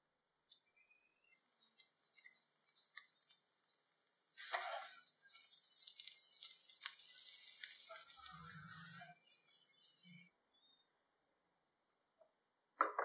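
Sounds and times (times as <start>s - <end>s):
rice sizzling in a pan: 0.5s - 10.3s
rice stirred with a spatula: 0.7s - 10.3s.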